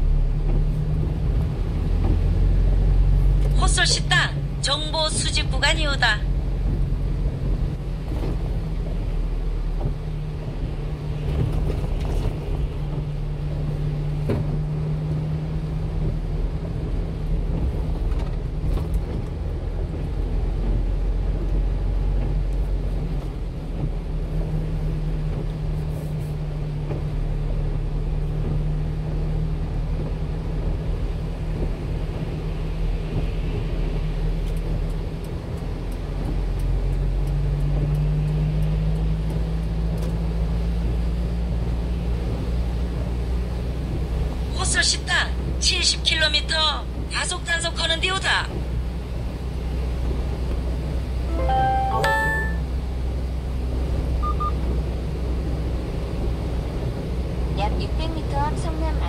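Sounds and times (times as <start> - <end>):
engine and road noise drone: 0.0 - 59.0.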